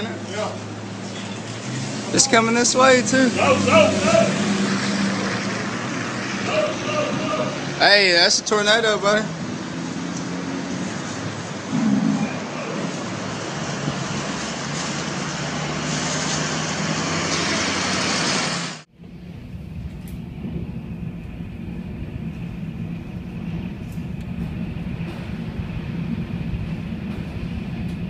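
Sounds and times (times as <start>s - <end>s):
tornado wind and rain rushing: 0.0s - 28.0s
storm wind and rain through glass: 19.0s - 28.0s.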